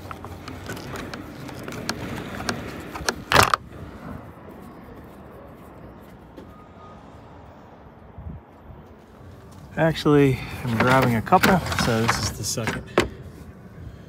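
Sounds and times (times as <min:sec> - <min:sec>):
plastic cover clicking and rattling: 0:10.8 - 0:13.1.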